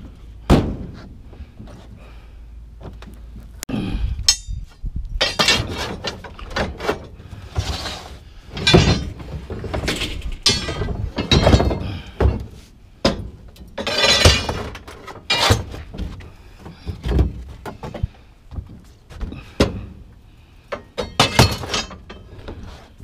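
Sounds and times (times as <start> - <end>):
pipe rattling scrape: 4.3 - 11.9, 13.8 - 16.2
metal pipes knocking: 8.6 - 14.7.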